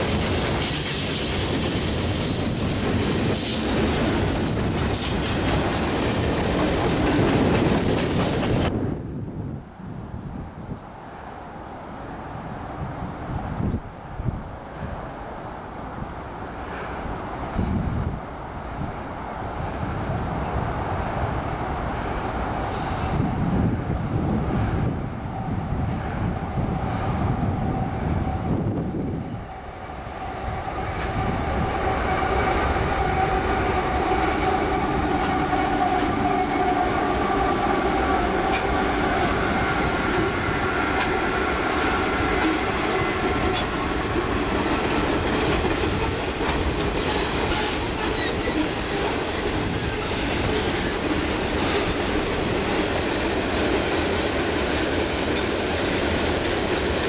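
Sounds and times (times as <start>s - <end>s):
diesel locomotive engines running: 0.0s - 8.8s, 21.7s - 57.0s
wheels clicking over rail joints: 38.0s - 57.0s.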